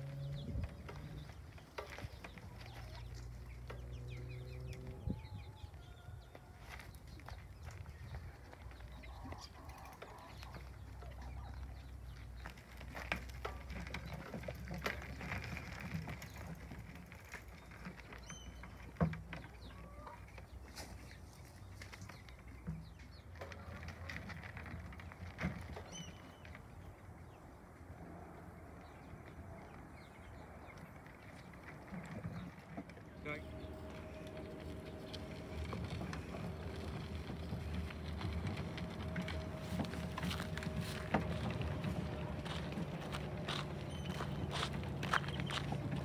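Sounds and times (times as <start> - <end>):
cart knocking over bumps: 0.0 - 21.2, 21.8 - 26.9, 31.4 - 46.0
tyres crunching on gravel: 0.0 - 27.5, 28.9 - 46.0.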